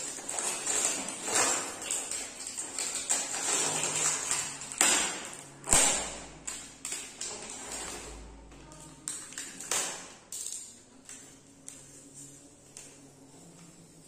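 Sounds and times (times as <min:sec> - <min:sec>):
plastic packaging crackling: 0:00.0 - 0:11.2.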